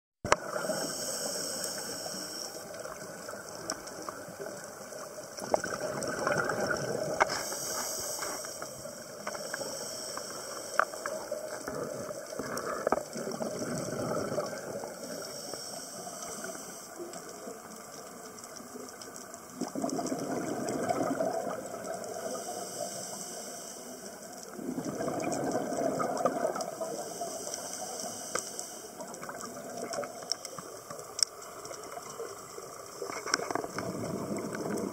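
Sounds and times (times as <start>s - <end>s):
regulator inhale hiss: 0.4s - 3.3s, 7.1s - 12.9s, 14.8s - 17.5s, 22.0s - 24.6s, 26.6s - 29.4s
exhaled bubbles rushing: 2.8s - 7.4s, 11.4s - 15.2s, 19.4s - 22.2s, 24.5s - 27.0s, 31.9s - 34.9s.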